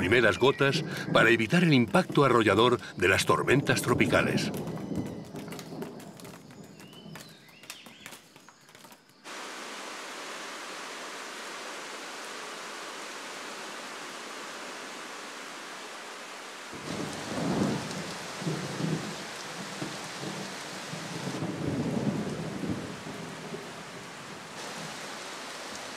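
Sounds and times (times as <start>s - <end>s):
heavy rain hissing: 0.0s - 4.7s, 9.2s - 25.9s
thunder rumbling: 0.0s - 7.2s, 16.7s - 25.8s.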